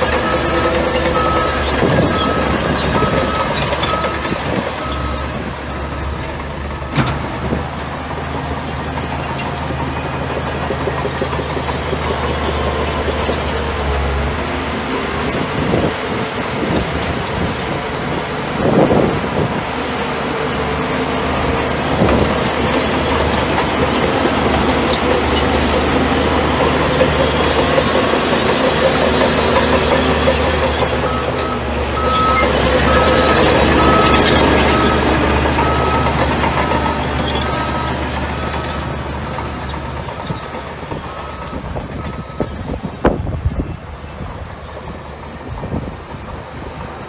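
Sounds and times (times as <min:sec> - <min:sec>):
bulldozer diesel engine running: 0:00.0 - 0:47.0.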